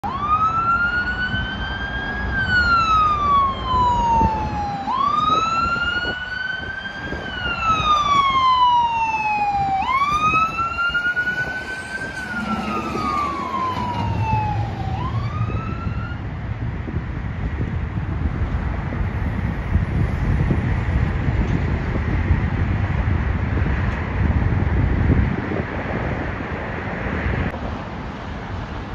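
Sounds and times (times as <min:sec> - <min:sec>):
siren wailing: 0:00.0 - 0:16.4
truck engine and road noise: 0:00.0 - 0:28.9.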